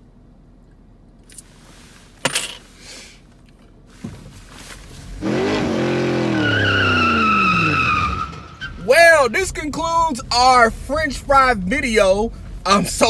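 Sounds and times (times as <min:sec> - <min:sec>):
car engine: 0:00.0 - 0:13.0
tire squeal: 0:05.2 - 0:09.0.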